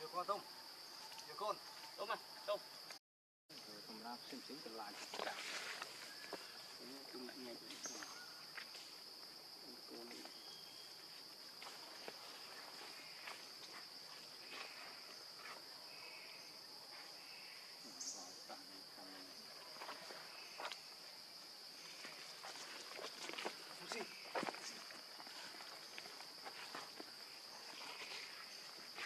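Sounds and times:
insect drone: 0.0 - 29.0
rustles in dry leaves: 4.9 - 6.8.

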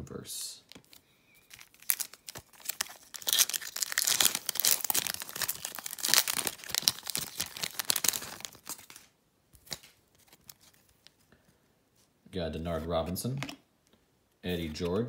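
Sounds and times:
card pack wrapper crinkling: 0.7 - 11.2.

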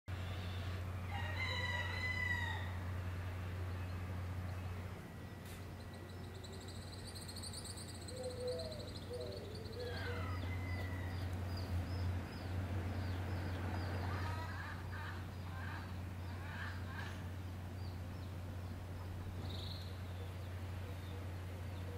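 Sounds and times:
steady low hum: 0.1 - 21.9
rooster crowing: 1.0 - 2.9, 9.7 - 11.6
faint bird calls: 5.4 - 11.3, 13.4 - 21.9.

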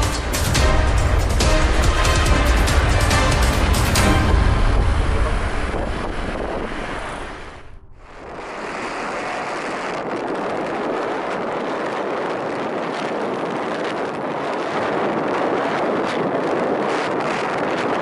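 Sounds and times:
road noise: 0.0 - 10.4
wind rushing over microphone: 0.0 - 18.0.

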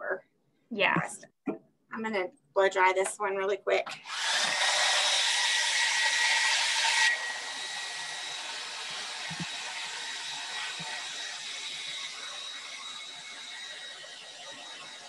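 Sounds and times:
hair dryer blowing: 3.9 - 15.0.

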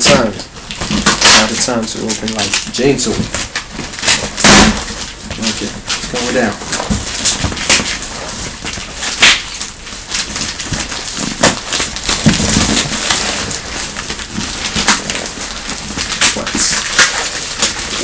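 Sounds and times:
cardboard cracks and knocks: 0.0 - 18.0
cardboard rustling and scraping: 0.0 - 18.0.

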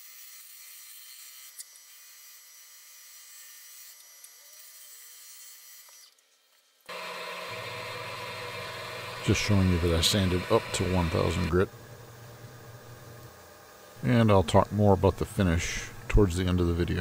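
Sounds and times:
lathe gouge cutting wood: 6.9 - 13.2
deep steady hum: 6.9 - 13.4.

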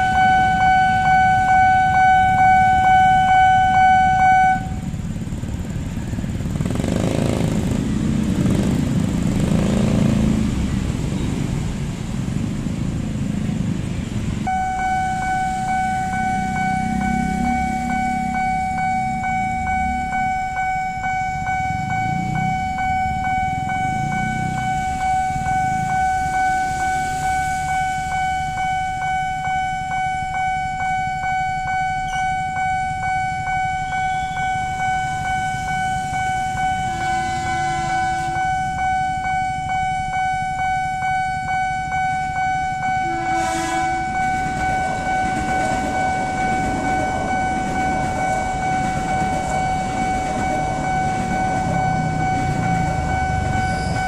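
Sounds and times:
train horn: 0.0 - 4.9, 36.5 - 38.8, 42.8 - 50.6
level-crossing warning bell: 0.0 - 7.2, 13.8 - 54.0
low rumble of traffic: 0.0 - 54.0
train passing: 0.0 - 54.0.

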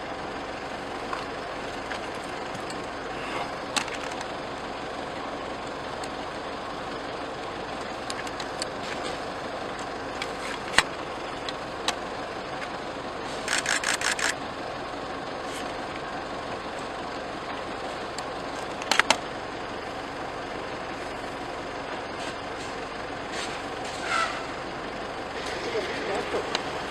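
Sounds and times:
vehicle engine idling: 0.0 - 26.9
sharp clicks: 13.4 - 14.4.

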